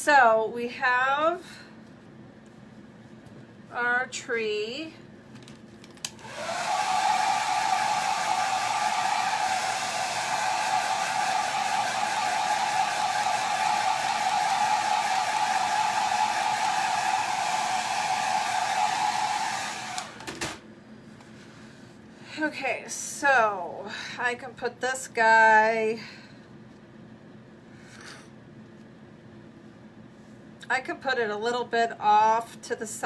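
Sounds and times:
hair dryer humming: 6.1s - 20.6s.

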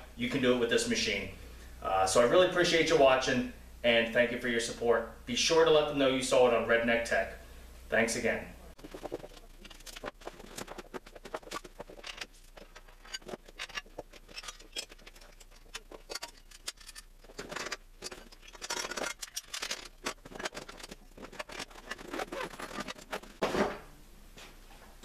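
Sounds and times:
metal parts clinking and knocking: 8.8s - 23.4s
fabric bag rustling: 20.1s - 23.4s.

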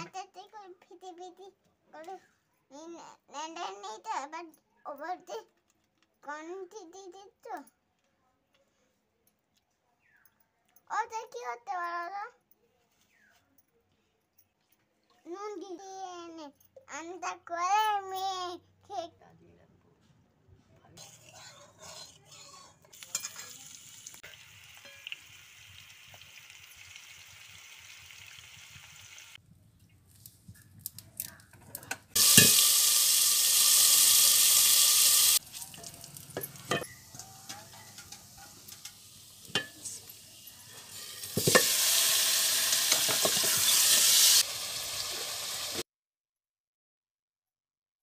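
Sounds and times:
spatula scraping and knocking a pan: 21.0s - 23.6s, 32.1s - 32.7s, 35.8s - 40.0s, 40.8s - 41.8s, 42.9s - 44.0s
onions sizzling in hot oil: 22.9s - 29.4s, 32.1s - 45.8s.

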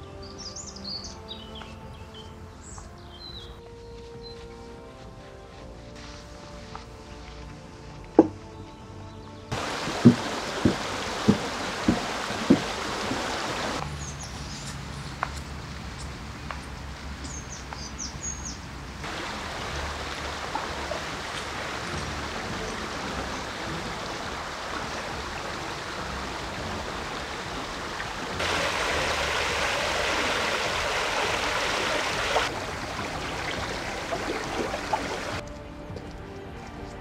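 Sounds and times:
brook rushing and burbling: 9.5s - 17.8s, 18.9s - 35.4s.

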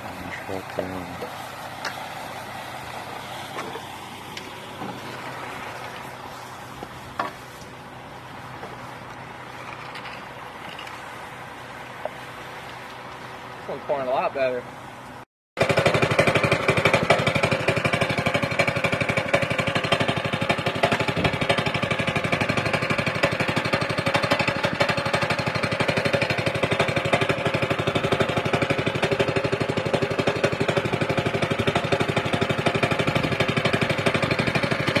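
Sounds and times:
small gasoline engine pulsing: 0.0s - 35.0s.

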